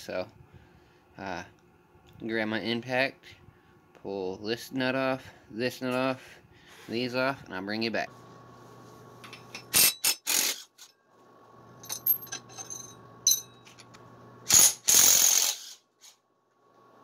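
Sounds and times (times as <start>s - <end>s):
socket and tool clinking: 11.8s - 13.9s.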